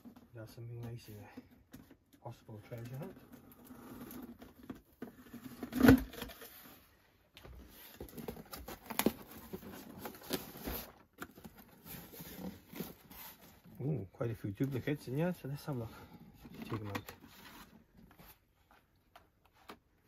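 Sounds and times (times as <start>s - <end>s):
cardboard rustling and scraping: 2.5s - 19.9s.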